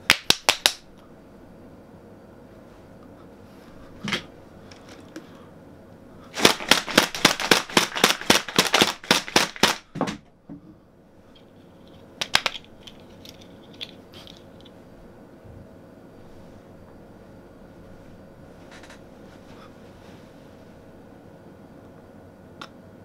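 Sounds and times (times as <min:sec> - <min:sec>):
sharp slapping hits: 0:00.0 - 0:00.8, 0:06.4 - 0:09.9.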